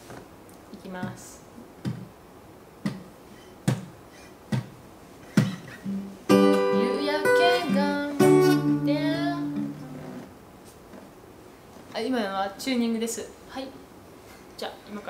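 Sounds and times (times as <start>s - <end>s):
acoustic guitar strummed: 5.3s - 10.3s.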